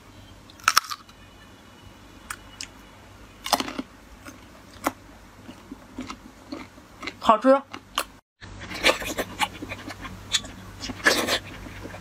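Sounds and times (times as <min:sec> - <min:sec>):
crunchy chewing of mango: 0:03.4 - 0:12.0.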